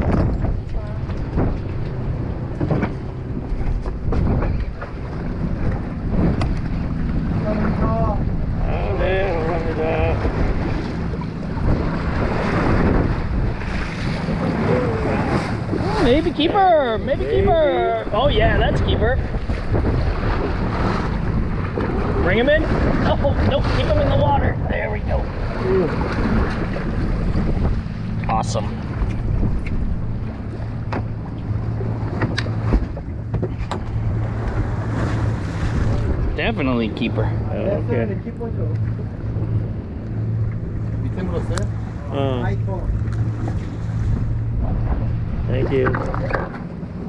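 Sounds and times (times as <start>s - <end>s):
low hum: 0.0s - 47.0s
sea water splashing against hull: 0.0s - 47.0s
wind buffeting microphone: 0.0s - 47.0s.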